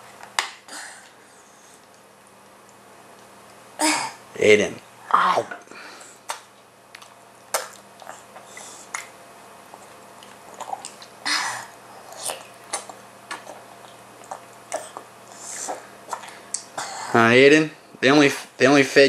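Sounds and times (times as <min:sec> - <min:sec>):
baby chewing: 0:06.1 - 0:16.8.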